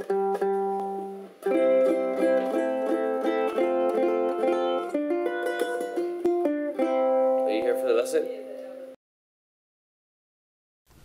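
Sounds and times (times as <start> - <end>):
ukulele note ringing: 0.0 - 8.1
ukulele chords plucked: 0.0 - 9.0.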